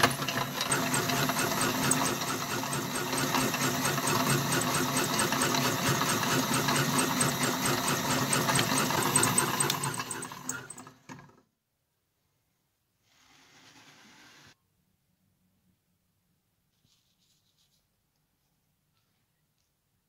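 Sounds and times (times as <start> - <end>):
electric meat grinder motor: 0.0 - 11.3.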